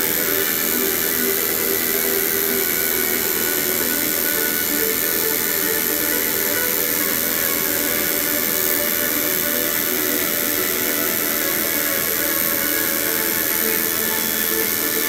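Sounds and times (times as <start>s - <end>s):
tattoo machine buzzing: 0.0s - 15.0s.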